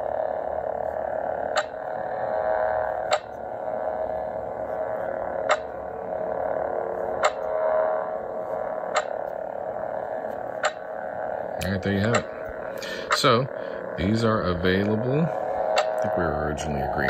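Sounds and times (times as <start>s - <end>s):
pulsing electronic hum: 0.0s - 17.0s
sharp clicks: 1.5s - 1.8s, 3.1s - 3.4s, 5.5s - 5.7s, 7.2s - 7.6s, 8.9s - 9.4s, 10.6s - 10.9s, 11.6s - 13.3s, 15.7s - 16.2s.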